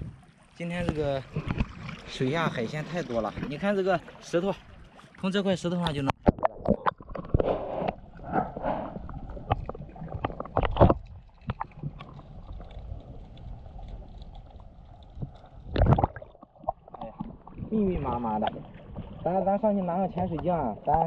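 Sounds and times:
water sloshing and gurgling: 0:00.0 - 0:21.0
low underwater rumble: 0:06.1 - 0:21.0.

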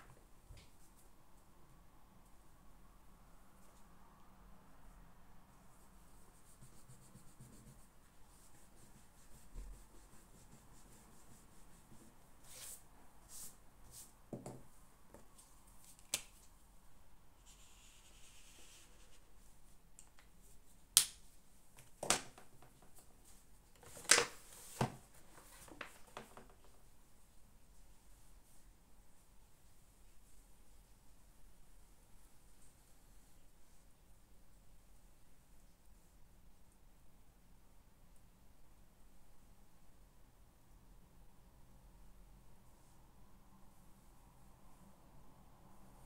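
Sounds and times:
faint rubbing and handling: 0:05.5 - 0:16.6, 0:17.4 - 0:20.8.

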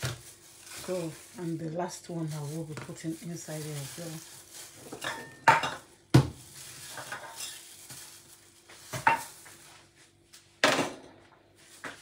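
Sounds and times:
kitchenware clicks and scraping: 0:04.8 - 0:05.9, 0:06.9 - 0:07.7, 0:08.9 - 0:09.5.

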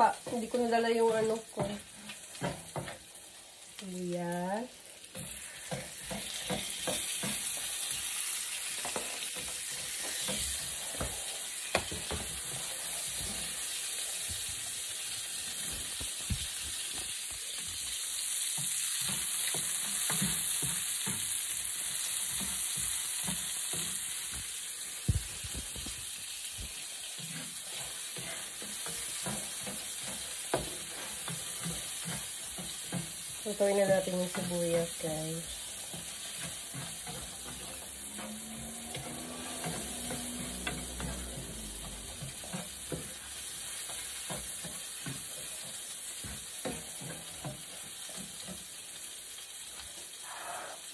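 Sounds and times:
onions sizzling in oil: 0:00.0 - 0:50.9
spatula scraping a pan: 0:05.0 - 0:14.4, 0:26.8 - 0:50.9.

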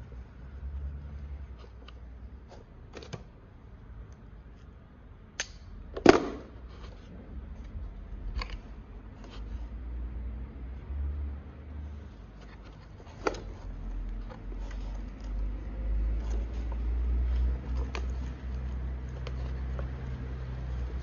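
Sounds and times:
sharp click: 0:05.4 - 0:05.7
small clicks and rustles: 0:11.8 - 0:21.0.

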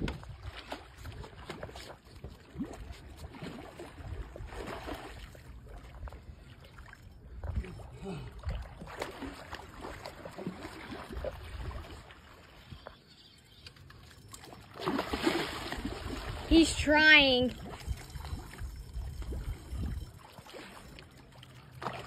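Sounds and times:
water sloshing and splashing: 0:00.0 - 0:22.0.

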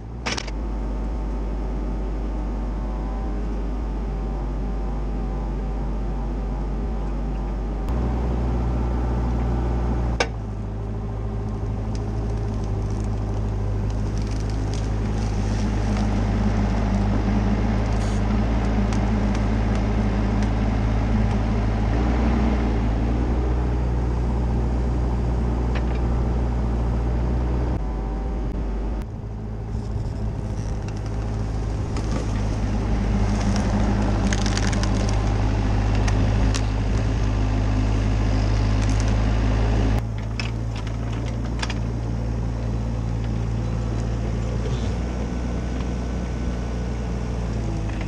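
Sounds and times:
excavator diesel engine running: 0:00.0 - 0:48.0.

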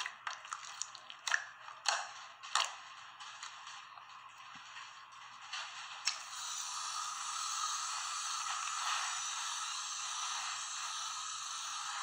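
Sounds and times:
aerosol can spraying foam: 0:06.2 - 0:12.0.

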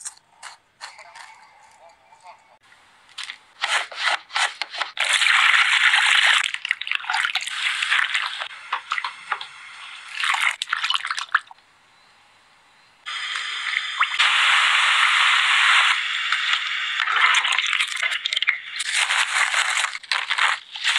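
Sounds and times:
mandoline slicer scraping: 0:03.6 - 0:05.1
water splashing and bubbling: 0:05.0 - 0:09.5, 0:10.1 - 0:11.6.

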